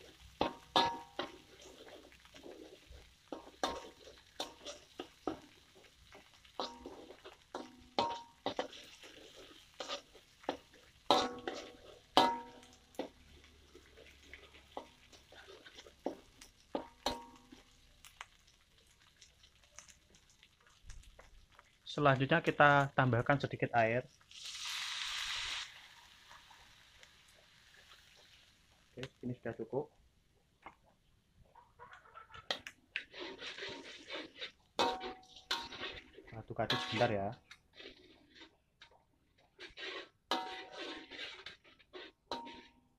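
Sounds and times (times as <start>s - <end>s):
metal spatula scraping a wok: 0.0s - 17.7s, 24.4s - 26.8s, 32.4s - 42.9s.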